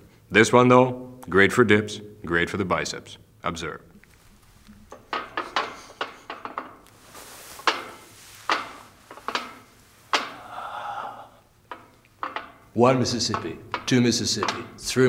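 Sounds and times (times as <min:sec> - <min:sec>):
metal pull-up bar clicking: 0:04.9 - 0:06.8, 0:07.6 - 0:10.4, 0:11.7 - 0:14.8.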